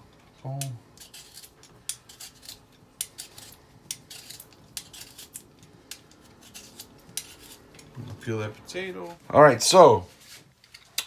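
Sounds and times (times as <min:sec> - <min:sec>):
peeler scraping potato skin: 0:00.5 - 0:08.0.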